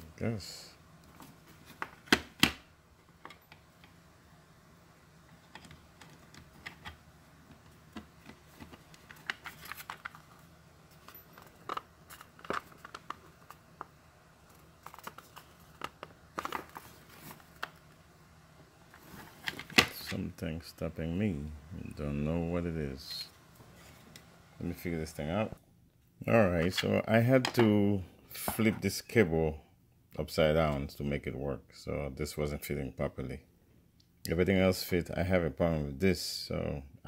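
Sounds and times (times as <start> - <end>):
hands handling plastic case: 5.5 - 13.9, 14.5 - 17.9, 18.9 - 20.2.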